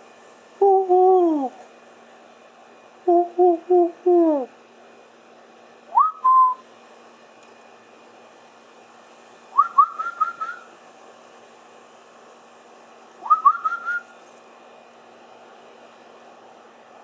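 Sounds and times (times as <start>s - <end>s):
short rising whistles: 5.9s - 6.7s, 9.5s - 10.8s, 13.2s - 14.2s.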